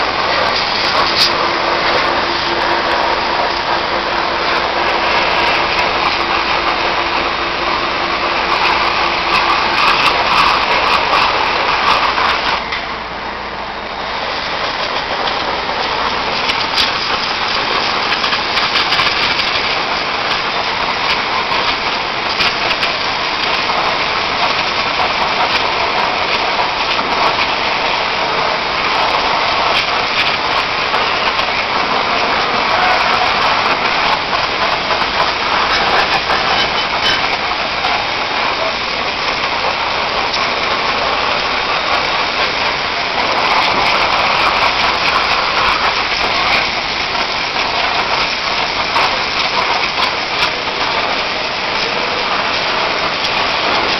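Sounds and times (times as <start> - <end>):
pressure washer jet hissing on metal: 0.0 - 53.9.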